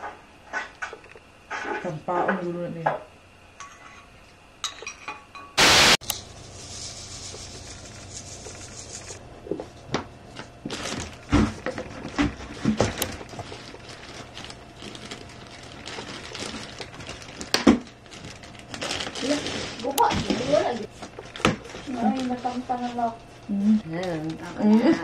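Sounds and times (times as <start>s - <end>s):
faint hiss: 5.6s - 9.2s.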